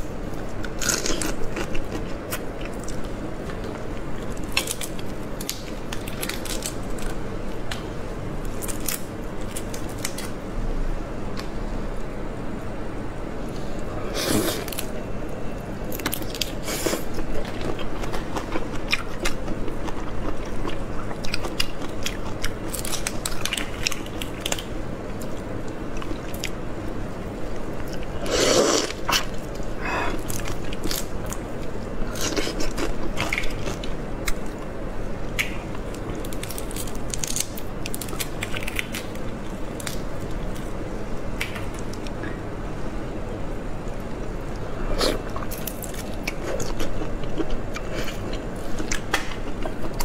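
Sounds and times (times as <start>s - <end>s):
chewing crunchy shrimp: 0.6s - 7.2s, 16.0s - 26.6s, 27.8s - 34.7s, 44.8s - 50.0s.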